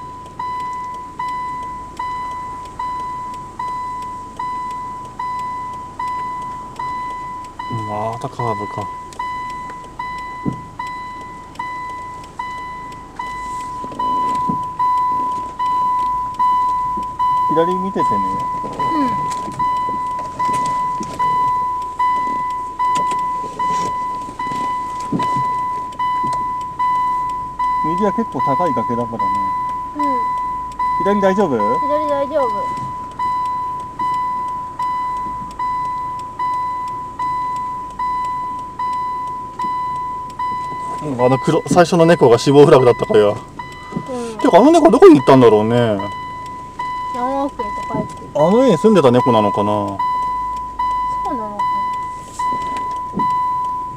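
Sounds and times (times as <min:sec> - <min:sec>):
reverse warning chime beeping: 0:00.0 - 0:53.9
low thump: 0:10.4 - 0:10.7.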